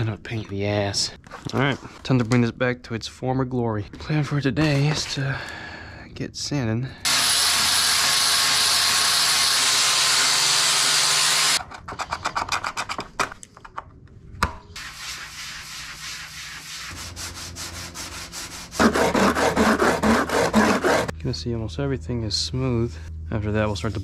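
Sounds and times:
electric sander running: 0:07.1 - 0:11.6, 0:18.7 - 0:21.1
hand sanding strokes: 0:14.8 - 0:21.1.

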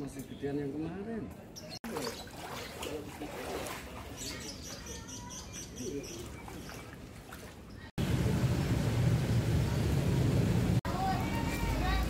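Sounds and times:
faint distant voices: 0:00.0 - 0:08.5
outdoor background noise: 0:00.0 - 0:12.0
small birds chirping: 0:01.4 - 0:07.9.

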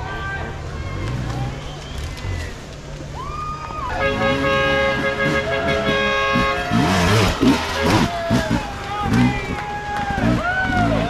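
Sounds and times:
horn blast: 0:03.8 - 0:09.3
dirt bike engine revving: 0:04.0 - 0:11.0.

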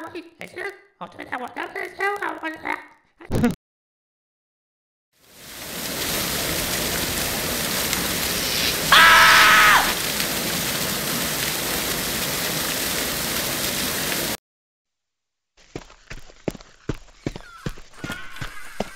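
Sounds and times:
cartoon water spraying: 0:05.7 - 0:14.4.

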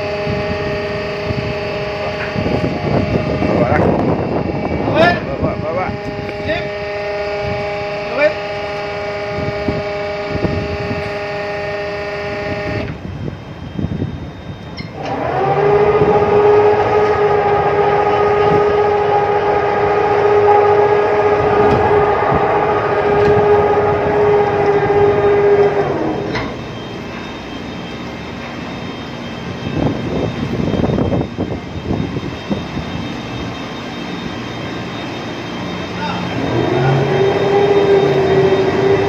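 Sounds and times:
low machinery noise: 0:00.0 - 0:39.0
winch motor whining: 0:00.0 - 0:39.0.

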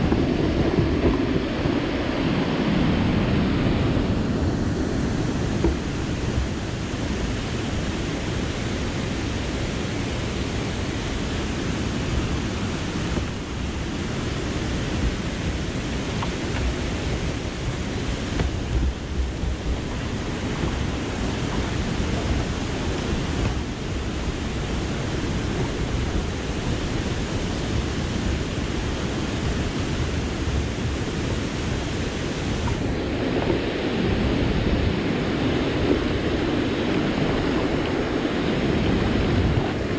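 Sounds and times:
water rushing over a dam: 0:00.0 - 0:39.9.

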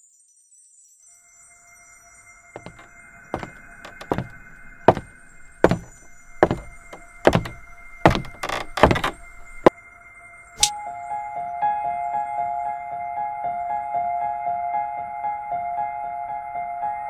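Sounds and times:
evenly spaced thumps: 0:02.6 - 0:09.7.

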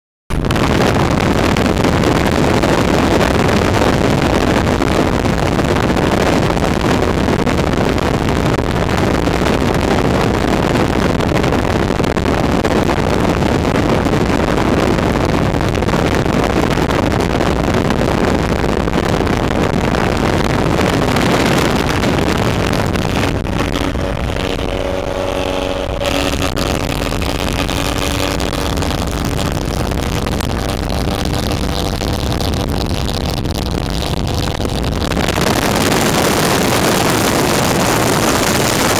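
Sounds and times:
wind and road noise inside car: 0:00.3 - 0:38.9
steady tones: 0:15.3 - 0:38.3.

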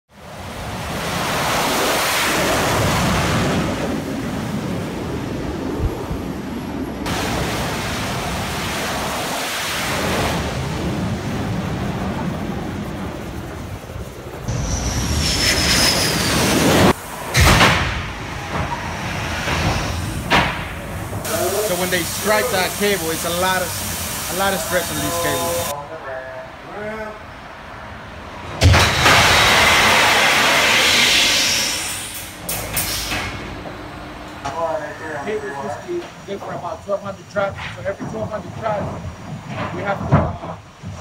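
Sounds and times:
jet engines roaring: 0:00.2 - 0:39.0
loud bangs: 0:14.5 - 0:22.7, 0:28.5 - 0:34.0.

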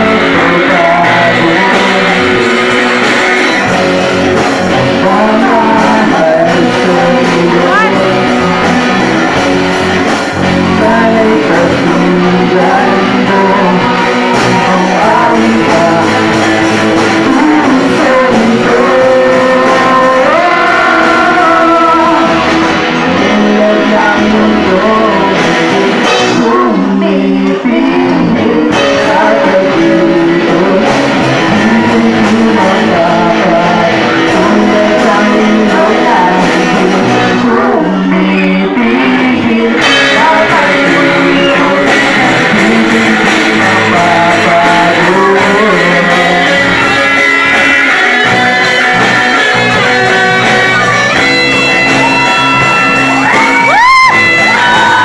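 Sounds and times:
boy singing: 0:00.0 - 0:08.8, 0:10.4 - 0:55.0
live rock band playing: 0:00.0 - 0:55.0
girl singing: 0:05.0 - 0:08.6.

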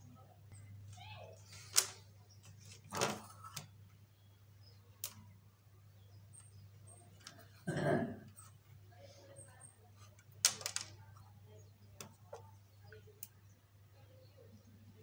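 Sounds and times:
plastic parts clicking: 0:01.7 - 0:03.7, 0:05.0 - 0:05.2, 0:10.2 - 0:11.0.

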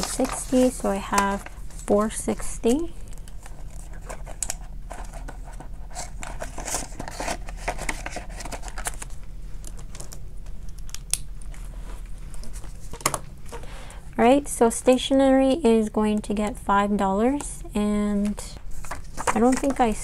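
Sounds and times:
paper bills rustling: 0:00.0 - 0:02.5, 0:03.1 - 0:10.2.

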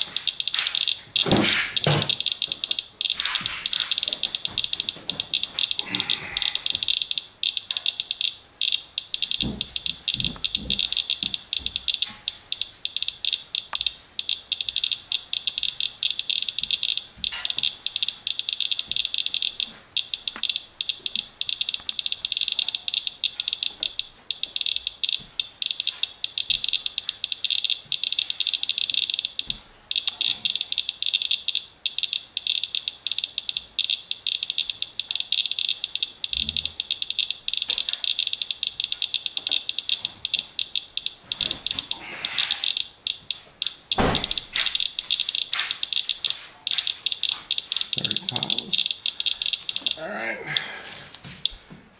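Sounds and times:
geiger counter clicking rapidly: 0:00.0 - 0:50.0.

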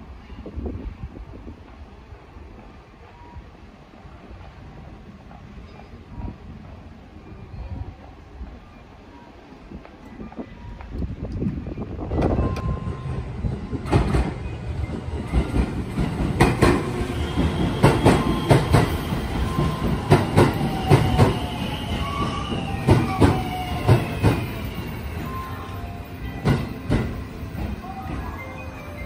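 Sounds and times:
train wheels clicking on rail joints: 0:09.7 - 0:25.3.

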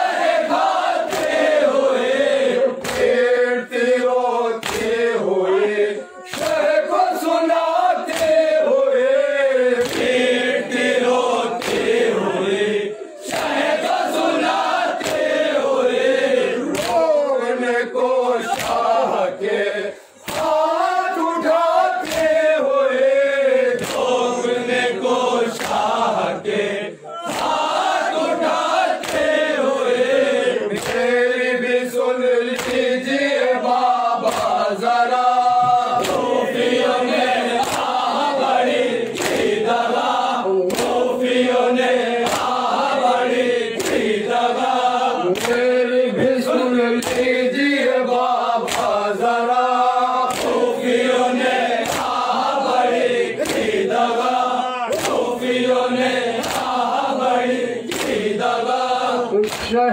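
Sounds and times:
men chanting in unison: 0:00.0 - 0:59.9
hands slapping on chests: 0:00.5 - 0:01.6, 0:02.8 - 0:03.2, 0:04.6 - 0:05.0, 0:06.3 - 0:07.3, 0:08.0 - 0:08.6, 0:09.8 - 0:10.9, 0:11.5 - 0:12.2, 0:13.2 - 0:15.7, 0:16.6 - 0:17.2, 0:18.4 - 0:19.0, 0:20.2 - 0:22.5, 0:23.8 - 0:24.2, 0:25.5 - 0:26.2, 0:27.2 - 0:30.0, 0:30.7 - 0:31.2, 0:32.5 - 0:33.0, 0:33.6 - 0:41.3, 0:42.0 - 0:45.8, 0:47.0 - 0:47.4, 0:48.2 - 0:49.2, 0:49.9 - 0:58.8, 0:59.4 - 0:59.8.

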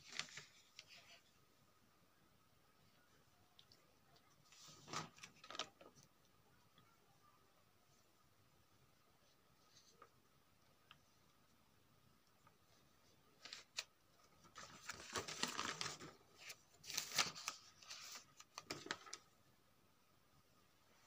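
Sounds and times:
paper rustling and crinkling: 0:00.0 - 0:01.3, 0:04.4 - 0:06.1, 0:12.7 - 0:19.4.

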